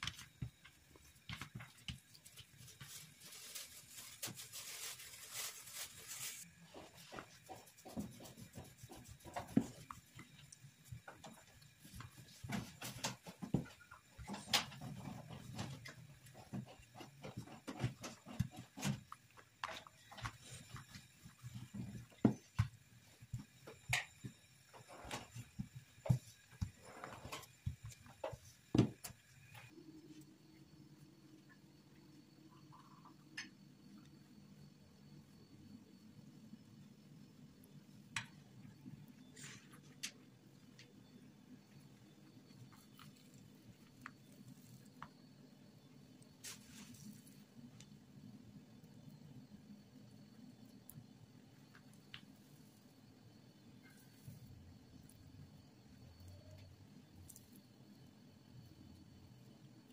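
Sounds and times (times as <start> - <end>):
dough rubbing on work surface: 3.8 - 13.4.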